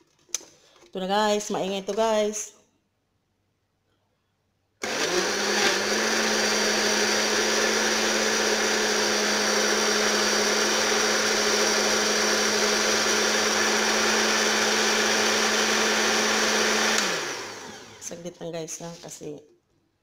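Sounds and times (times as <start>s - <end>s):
electric blender motor running: 4.8s - 18.1s.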